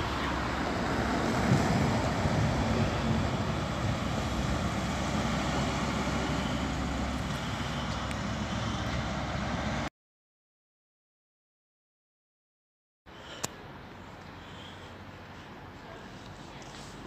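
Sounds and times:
train wheels rumbling on rail: 0:00.0 - 0:09.9.

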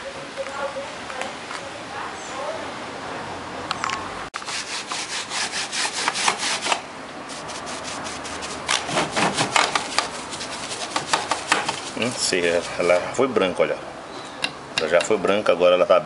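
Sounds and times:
brush scrubbing plastic keys: 0:04.4 - 0:13.1.

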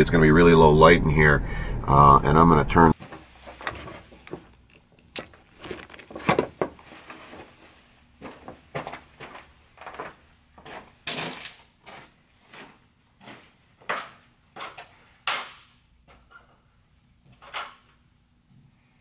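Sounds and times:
footsteps crunching on gravel: 0:05.2 - 0:13.6.

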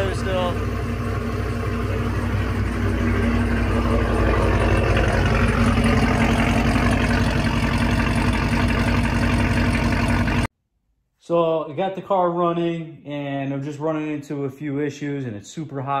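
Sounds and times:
car engine idling: 0:00.0 - 0:10.5.

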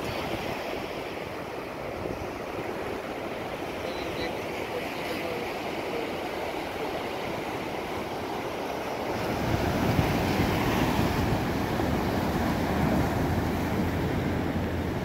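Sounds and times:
ocean waves breaking: 0:00.0 - 0:15.0
wind rumbling on microphone: 0:09.0 - 0:15.0.

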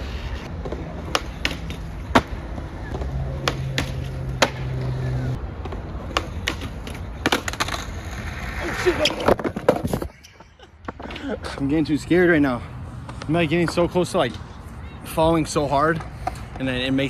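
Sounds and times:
skateboard wheels rolling on concrete: 0:00.0 - 0:17.0
skateboard clacks popping and landing: 0:00.6 - 0:04.8, 0:05.6 - 0:08.0, 0:08.8 - 0:10.2.

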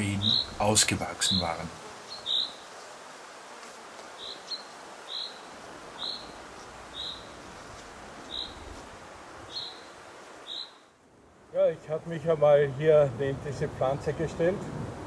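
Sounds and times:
bird chirping: 0:00.0 - 0:02.9, 0:04.2 - 0:07.5, 0:08.2 - 0:08.7, 0:09.5 - 0:10.9
steady background hiss: 0:00.0 - 0:15.0.

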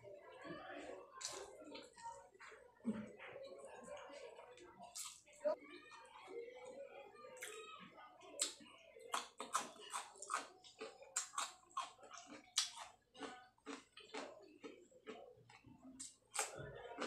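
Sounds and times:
cucumber crunching: 0:08.4 - 0:15.2.

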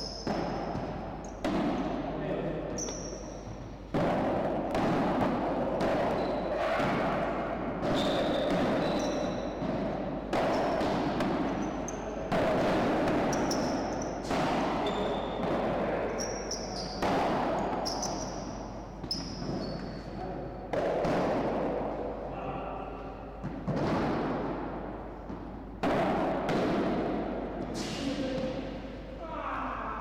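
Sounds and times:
padel ball hits: 0:00.2 - 0:02.1, 0:02.8 - 0:11.6, 0:12.3 - 0:19.6, 0:20.7 - 0:22.0, 0:23.4 - 0:27.8.

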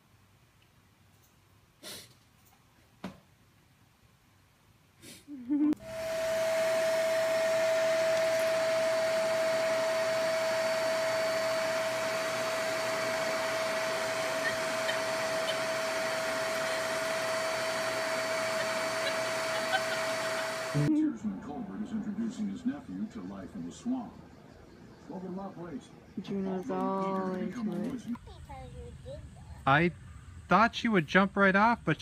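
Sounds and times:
vacuum cleaner running: 0:05.8 - 0:20.9.

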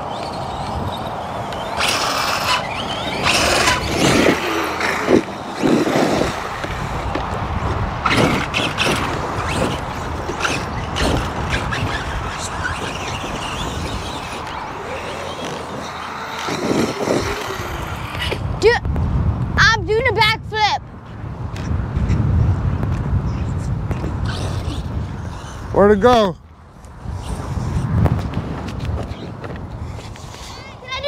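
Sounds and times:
rc truck motor whine: 0:00.0 - 0:18.5
tyre and dirt noise: 0:00.0 - 0:31.0.

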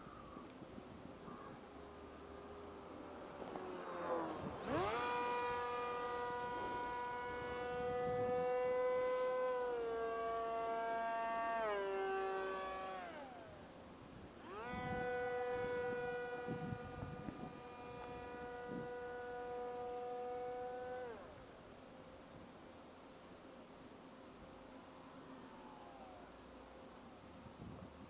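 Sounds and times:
model plane electric motor whining: 0:01.3 - 0:21.6, 0:25.3 - 0:26.8.

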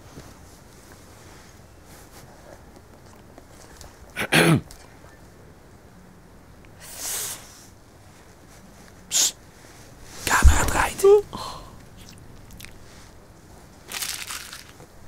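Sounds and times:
sharp hiss of breath: 0:06.8 - 0:07.7
breathy hiss: 0:06.8 - 0:07.8, 0:09.1 - 0:13.2
woman's short vocal sound: 0:10.2 - 0:11.7.

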